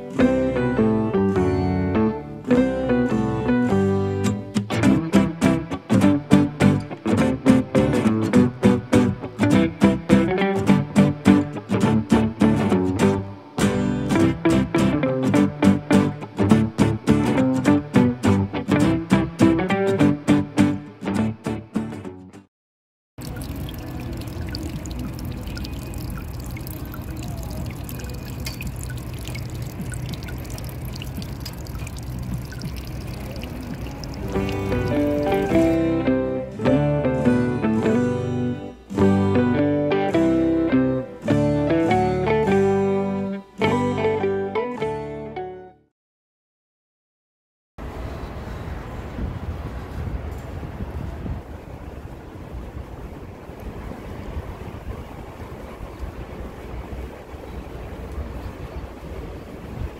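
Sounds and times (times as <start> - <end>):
low steady rumble: 23.2 - 35.5
water drips and plinks: 23.2 - 35.8
water trickling and lapping: 23.2 - 35.8
wind buffeting microphone: 48.4 - 59.9.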